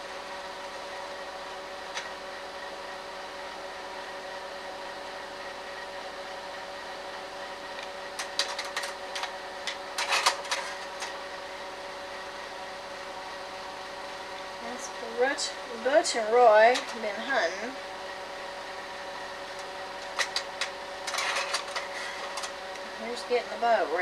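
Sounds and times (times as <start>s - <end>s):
projector fan humming: 0.0s - 24.0s
mechanical clicks and clatter: 8.2s - 11.2s.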